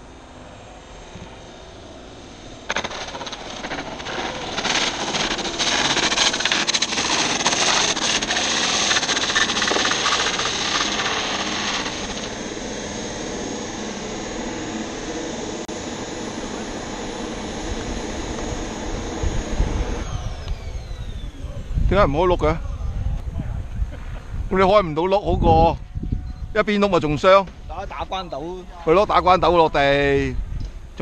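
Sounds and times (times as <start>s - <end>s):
high turbine whine: 0.0s - 31.0s
airframe rattling on runway: 2.7s - 12.2s.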